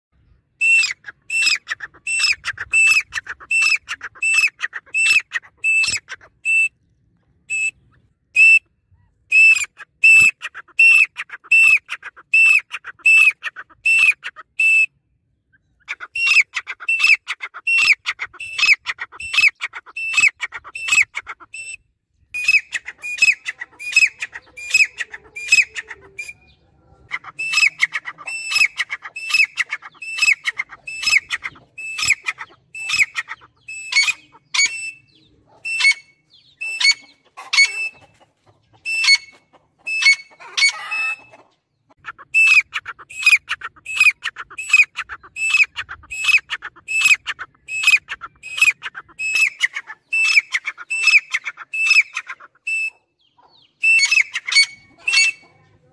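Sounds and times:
francolin calling: 0.4s - 6.8s.

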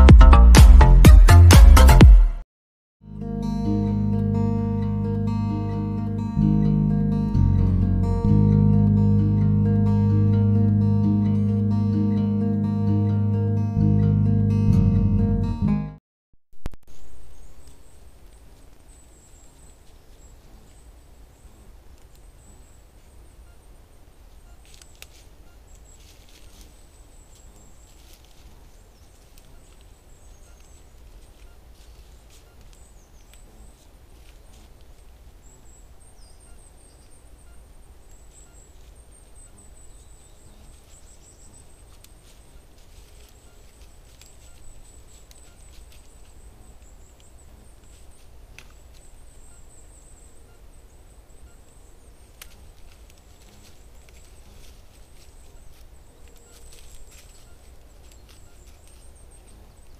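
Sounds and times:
low rumble: 3.1s - 16.0s
deer stepping through dry leaves: 24.6s - 35.4s, 40.4s - 47.1s, 52.2s - 59.4s.

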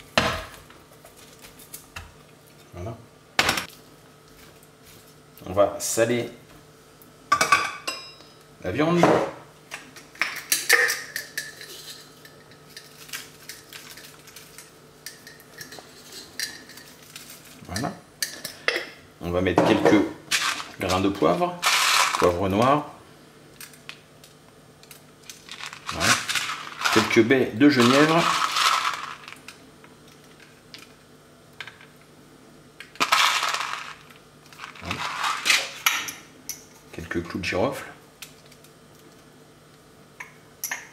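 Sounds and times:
berries rattling in glass bowl: 25.3s - 29.4s, 33.0s - 35.8s.

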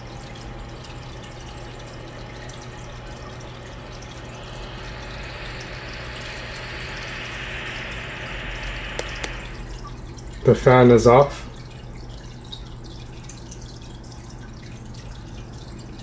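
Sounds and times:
low hum: 0.0s - 12.0s
cooling fan whirring: 0.0s - 12.6s
water trickling: 0.0s - 16.0s.

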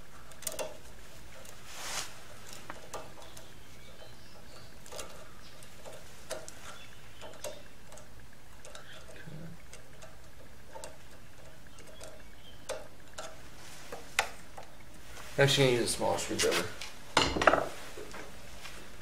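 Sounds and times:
screwdriver ticks and scrapes: 0.2s - 1.6s, 2.4s - 14.7s.

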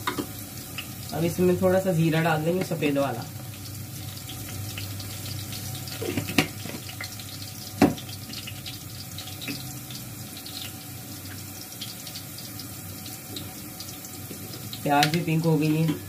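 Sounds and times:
onions sizzling in hot oil: 0.0s - 16.0s.

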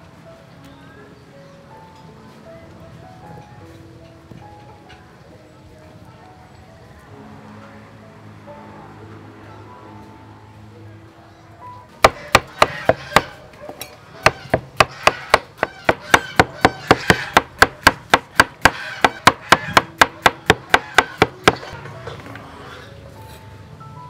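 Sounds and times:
cleaver chopping on wooden board: 12.0s - 13.4s, 14.2s - 21.7s.

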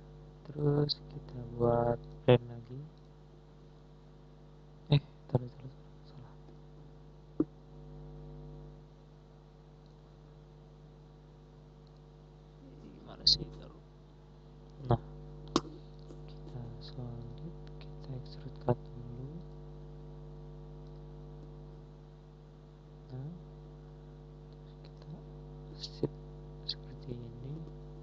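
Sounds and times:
electrical mains hum: 0.0s - 28.0s
faint murmurs: 12.6s - 13.8s, 14.8s - 19.5s, 24.6s - 27.7s.

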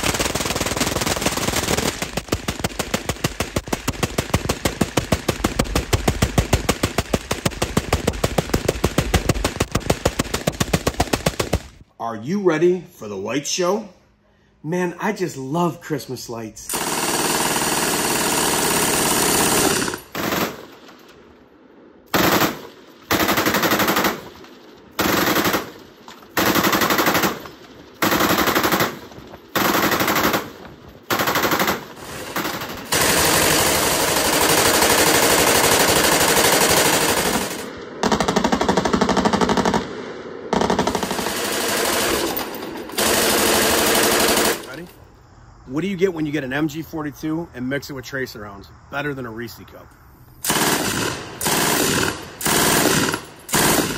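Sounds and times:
machine gun firing bursts: 0.0s - 11.8s, 16.7s - 20.9s, 22.1s - 39.9s, 40.5s - 44.9s, 50.4s - 53.9s.

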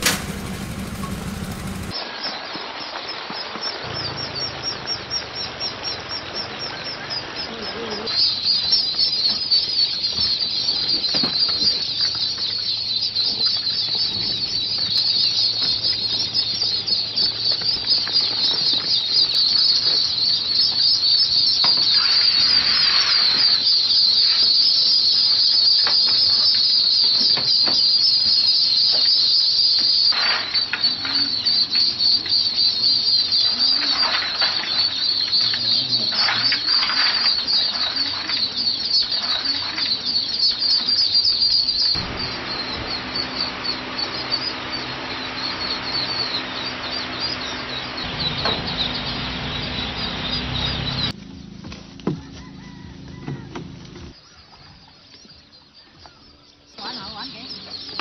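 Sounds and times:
steady low hum: 0.0s - 2.0s, 41.8s - 54.2s
ducklings peeping: 0.0s - 58.0s.

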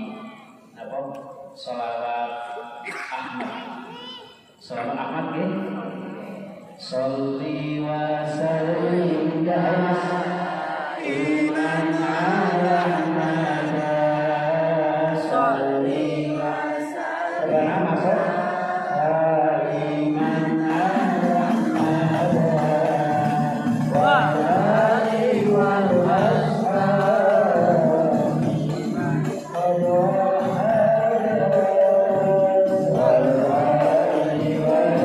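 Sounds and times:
man chanting devotional song: 4.7s - 10.4s, 17.4s - 35.0s.

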